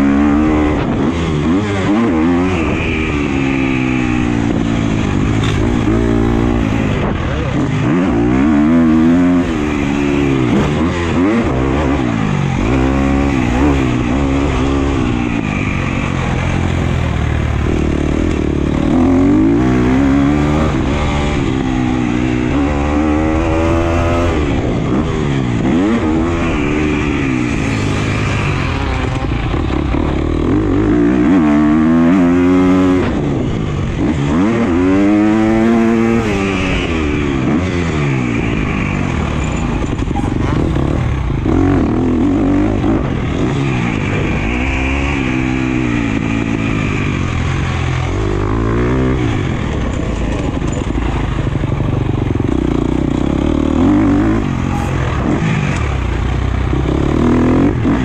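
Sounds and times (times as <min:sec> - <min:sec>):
motorcycle engine revving: 0:00.0 - 0:58.0.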